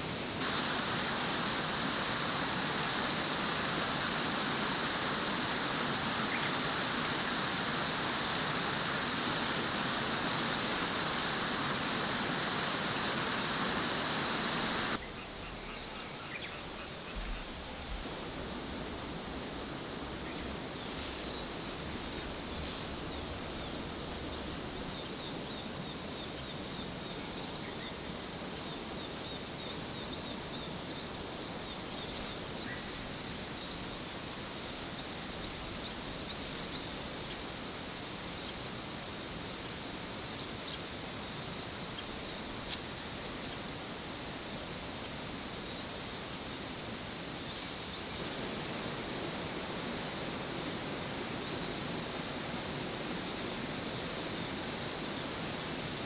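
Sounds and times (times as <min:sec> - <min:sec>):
outdoor background hiss: 0:00.0 - 0:56.0.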